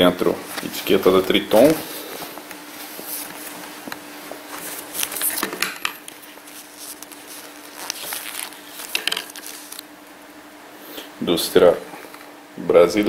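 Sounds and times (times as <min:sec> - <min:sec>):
faint steady hum: 0:00.0 - 0:13.0
denim fabric rustling: 0:00.4 - 0:05.4, 0:06.2 - 0:09.9.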